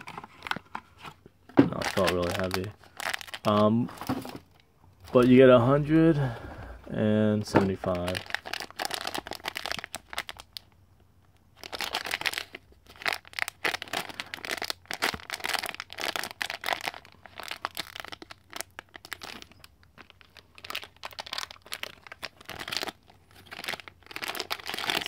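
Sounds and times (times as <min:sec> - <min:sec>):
foil wrapper crinkling: 0:01.7 - 0:04.5, 0:07.7 - 0:10.7, 0:11.6 - 0:25.0.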